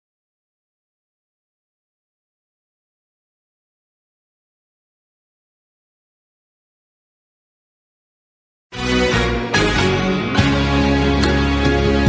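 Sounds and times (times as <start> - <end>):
instrumental music with plucked strings: 8.8 - 12.0.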